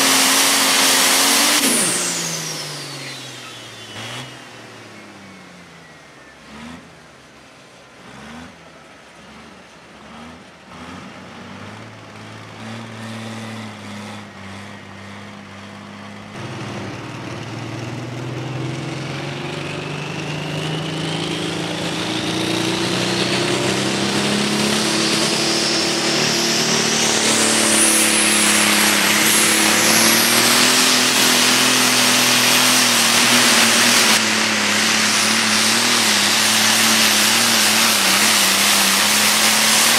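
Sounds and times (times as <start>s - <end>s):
diesel engine revving: 0.0s - 39.9s
tractor engine pulling at full power: 0.0s - 39.9s
turbo whistle: 22.1s - 39.5s.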